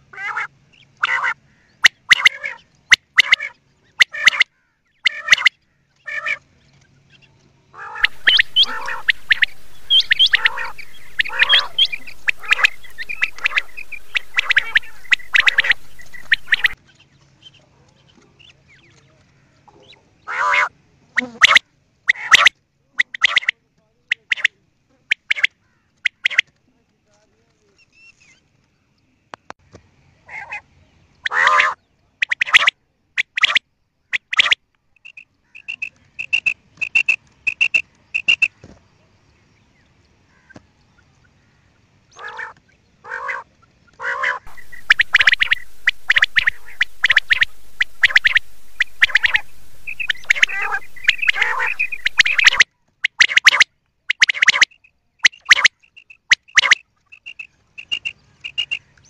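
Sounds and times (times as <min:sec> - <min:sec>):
quail calling: 0:00.2 - 0:05.5, 0:07.8 - 0:16.8, 0:19.8 - 0:23.5, 0:42.2 - 0:55.7, 0:56.3 - 0:58.8
recording hiss: 0:08.0 - 0:16.8, 0:44.5 - 0:52.6
whistled pips: 0:08.0 - 0:16.8, 0:44.5 - 0:55.7, 0:56.3 - 0:56.8.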